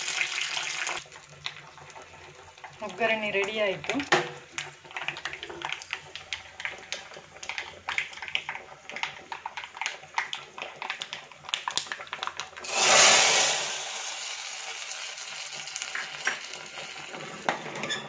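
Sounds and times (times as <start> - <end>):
mustard seeds popping in hot oil: 1.2 - 13.8, 14.6 - 17.2
burst of sizzling: 12.6 - 15.6.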